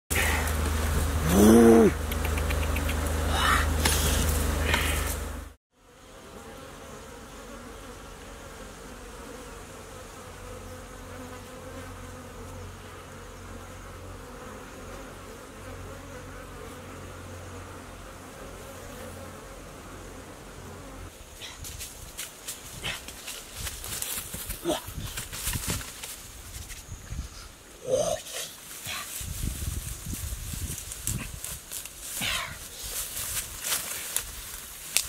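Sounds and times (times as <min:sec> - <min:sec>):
bees buzzing: 0:00.1 - 0:21.3
footsteps through brush: 0:02.6 - 0:05.5, 0:21.6 - 0:26.9, 0:28.6 - 0:35.0.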